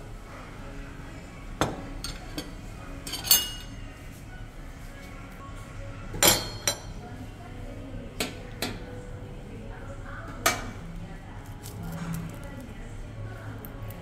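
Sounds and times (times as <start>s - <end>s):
metal tableware clinking: 2.0s - 3.8s.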